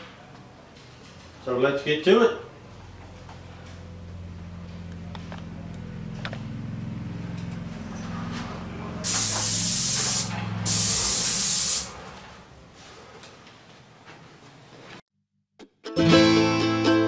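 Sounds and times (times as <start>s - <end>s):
paint spray gun hissing: 9.0s - 12.0s.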